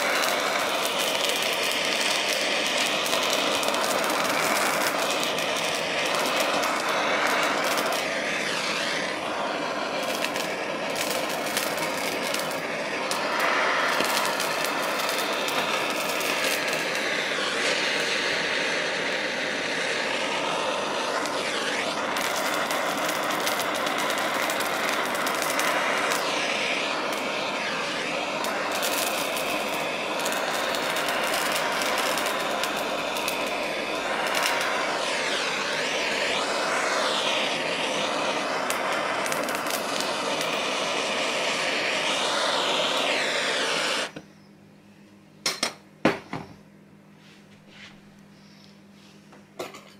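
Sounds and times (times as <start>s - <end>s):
light crackles: 0.0s - 18.2s, 20.9s - 35.4s, 38.0s - 40.8s
gas torch flame hissing: 0.0s - 44.4s.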